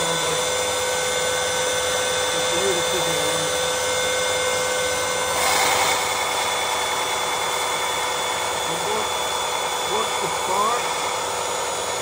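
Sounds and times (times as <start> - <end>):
belt sander motor whine: 0.0 - 12.0.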